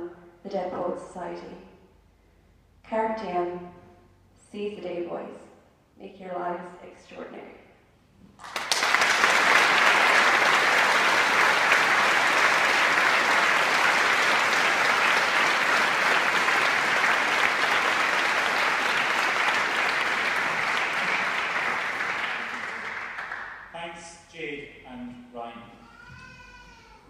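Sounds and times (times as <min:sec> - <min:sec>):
crowd applauding: 0:08.4 - 0:23.8.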